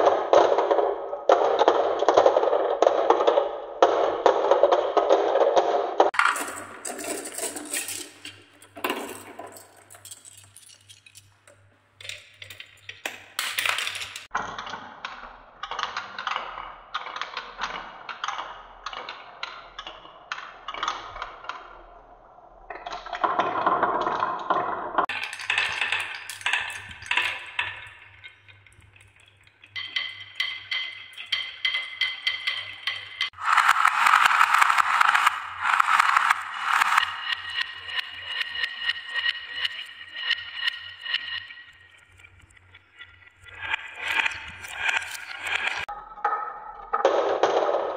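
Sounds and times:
marbles clattering on wooden tracks: 0.0s - 14.4s, 22.7s - 47.9s.

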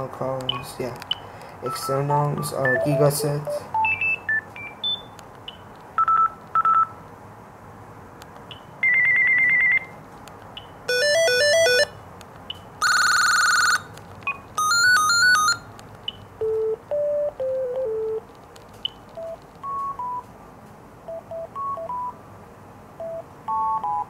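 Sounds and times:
phone key beeps: 0.4s - 6.9s, 10.6s - 11.9s, 12.5s - 18.2s, 18.8s - 20.3s, 21.1s - 22.2s, 23.0s - 24.0s
phone ringtone melodies: 1.6s - 5.1s, 8.8s - 9.9s, 10.9s - 11.9s, 12.8s - 15.7s, 16.4s - 18.2s, 19.1s - 20.3s, 21.0s - 22.2s, 23.0s - 24.0s.

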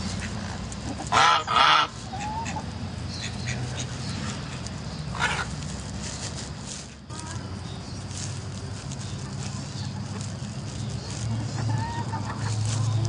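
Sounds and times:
goose honking: 1.0s - 2.6s.

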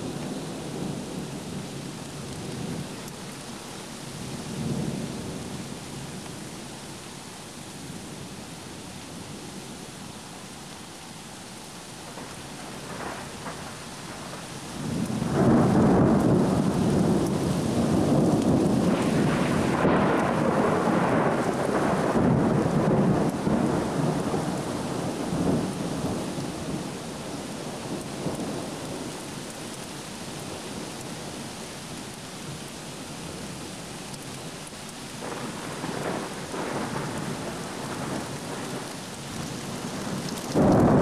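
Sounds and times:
rain hissing: 0.0s - 41.0s
thunder rumbling: 12.1s - 27.0s, 35.2s - 41.0s.

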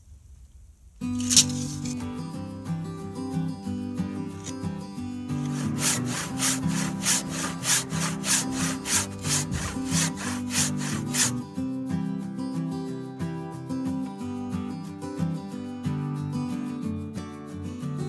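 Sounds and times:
acoustic guitar music: 1.0s - 18.0s
handsaw cutting timber: 5.3s - 11.4s.

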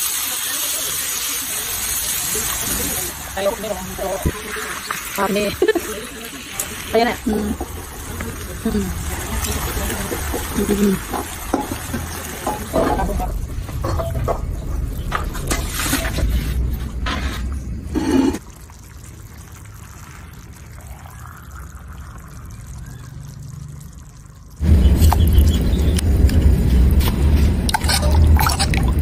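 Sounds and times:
utensils knocking against pan: 10.1s - 14.6s
liquid pouring into a pan: 18.4s - 24.6s.

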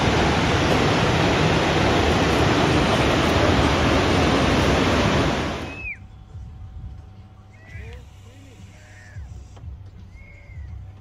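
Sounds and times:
waterfall rushing: 0.0s - 5.8s
falling whistle: 5.6s - 6.1s.

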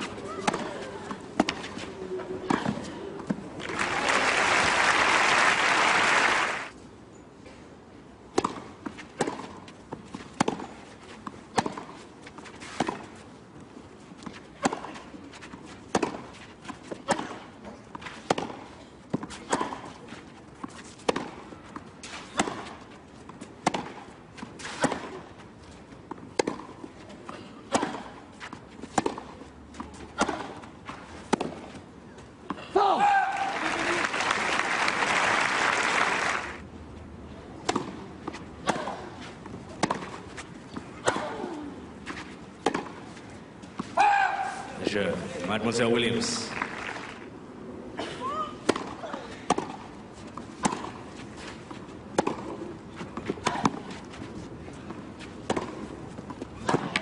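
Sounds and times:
racket hitting tennis ball: 0.0s - 1.8s, 8.3s - 13.2s, 14.2s - 25.3s, 26.1s - 31.8s, 37.6s - 44.8s, 48.6s - 57.0s
crowd applause: 3.6s - 6.7s, 33.3s - 36.6s, 46.4s - 47.2s
ball bouncing on clay court: 42.6s - 43.0s, 50.6s - 51.0s, 51.7s - 54.1s, 54.9s - 55.9s, 56.6s - 57.0s.

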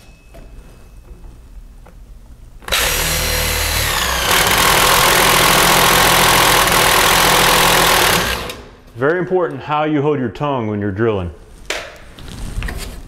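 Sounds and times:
impact driver boring into wood: 2.7s - 8.7s.

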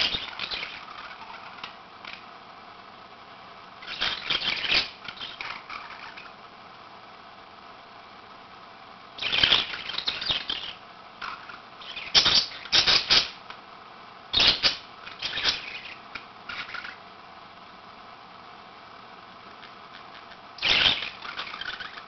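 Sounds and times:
budgerigars chattering: 11.8s - 13.4s, 19.6s - 22.0s.

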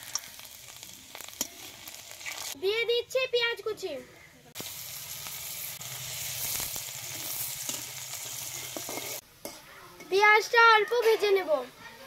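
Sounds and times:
onion sizzling in oil: 0.0s - 12.0s
metal spatula scraping: 6.1s - 10.2s.

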